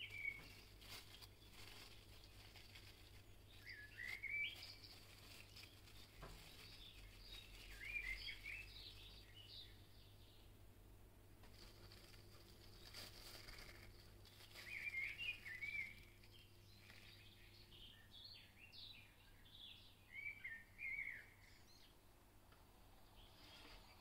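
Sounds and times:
bird chirping and twittering: 0.0 - 10.5, 13.6 - 22.0
low steady hum: 0.0 - 24.0.

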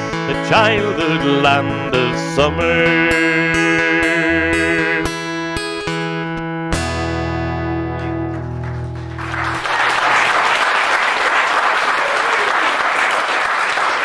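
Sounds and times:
acoustic guitar chord ringing: 0.0 - 9.2
audience applause: 8.4 - 14.0.

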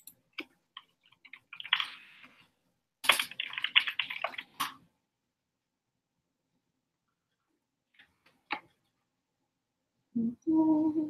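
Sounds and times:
typing on computer keyboard: 3.0 - 4.7.

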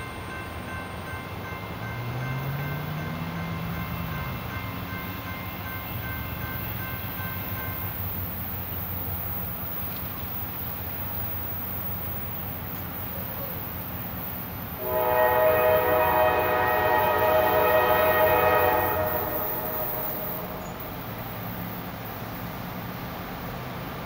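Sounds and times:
locomotive air horn chord: 14.8 - 21.0.

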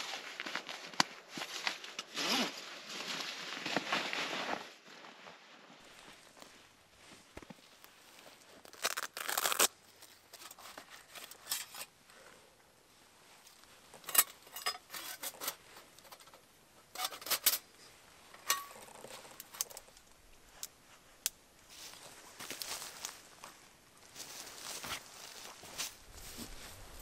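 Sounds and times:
dry leaves rustling: 21.7 - 27.0.

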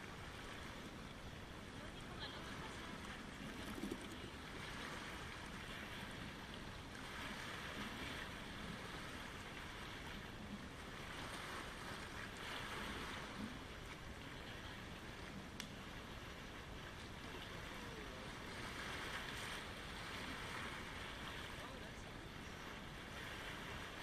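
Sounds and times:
waves washing over pebbles: 0.0 - 24.0.

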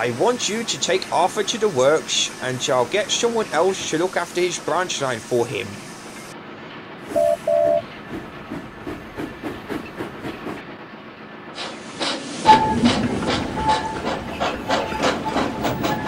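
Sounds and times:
steam hiss: 0.0 - 6.3, 11.6 - 16.0
steam locomotive chuffing: 7.0 - 16.0.

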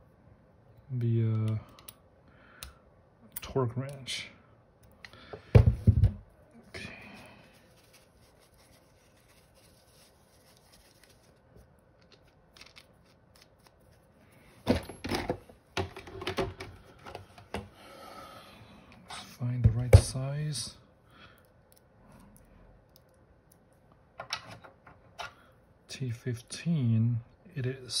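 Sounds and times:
small hard parts clicking and rattling: 12.0 - 13.5.

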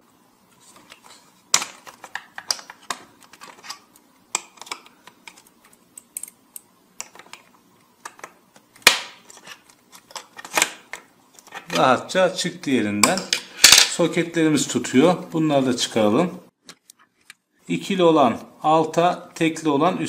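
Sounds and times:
sharp plastic snap: 8.8 - 9.2.

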